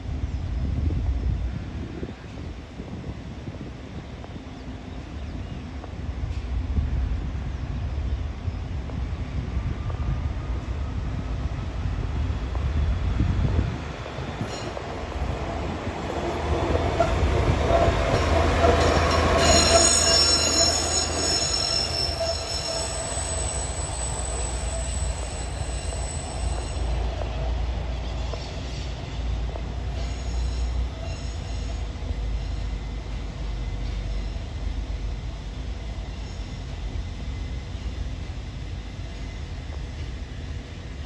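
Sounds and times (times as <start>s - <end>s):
rail car engine rumble: 0.0s - 41.0s
wheels squealing on rails: 14.4s - 40.4s.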